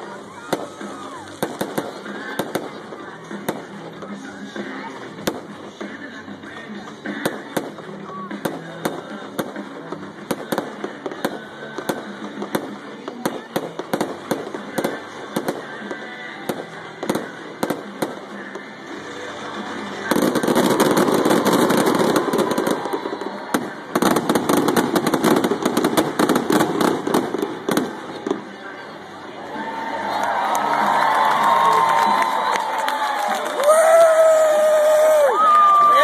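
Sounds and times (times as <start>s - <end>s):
fireworks bangs: 0.0s - 6.0s, 7.0s - 28.7s.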